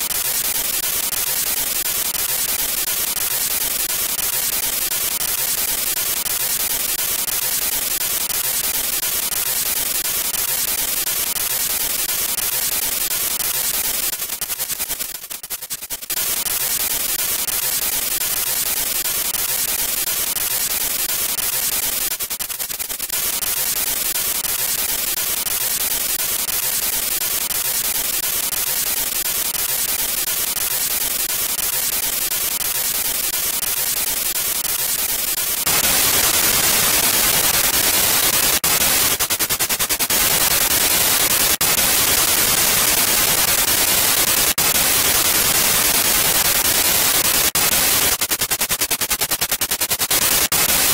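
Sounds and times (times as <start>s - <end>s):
rapid clicking: 13.4s - 50.9s
radio static: 35.7s - 48.4s.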